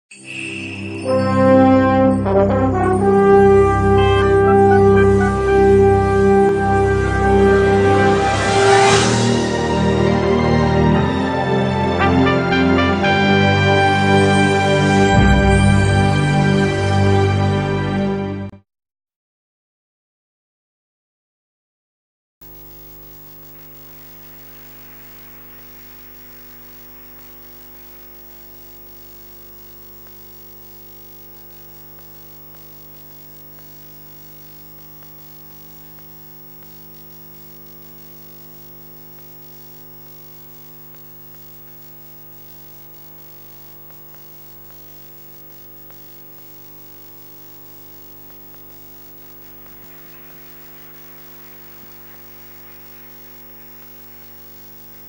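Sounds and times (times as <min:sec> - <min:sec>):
electrical mains hum: 0:22.4 - 0:55.0
faint hiss: 0:22.4 - 0:55.0.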